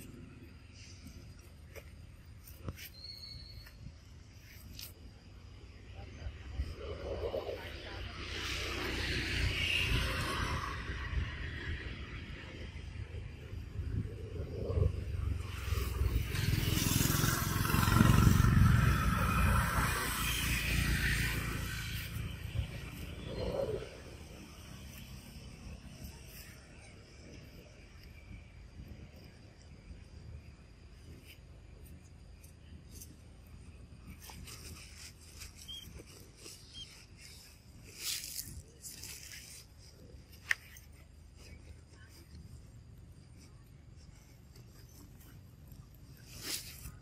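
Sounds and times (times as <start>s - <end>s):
rustling in dry leaves: 31.0s - 47.0s.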